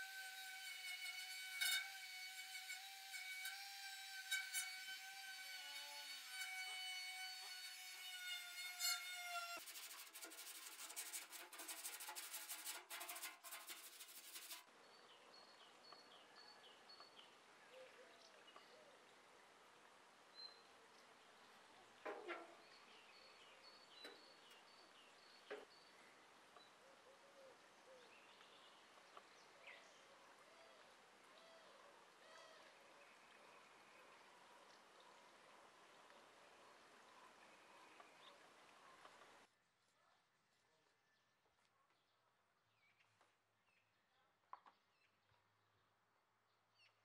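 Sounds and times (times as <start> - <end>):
rotary tool wire brush scratching: 0.0 - 14.7.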